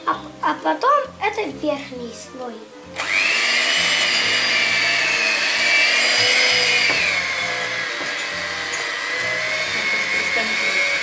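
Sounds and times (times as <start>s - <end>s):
electric hand mixer whine: 3.0s - 11.0s.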